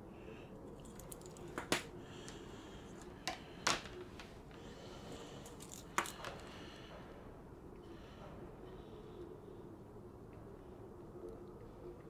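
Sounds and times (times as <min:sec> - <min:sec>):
metal parts tapping on wooden table: 0:01.2 - 0:01.9.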